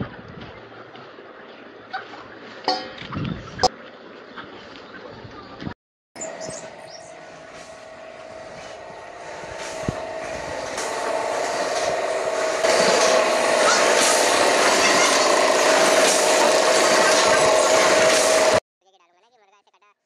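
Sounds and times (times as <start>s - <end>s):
machines running with steady hum: 6.2s - 18.6s.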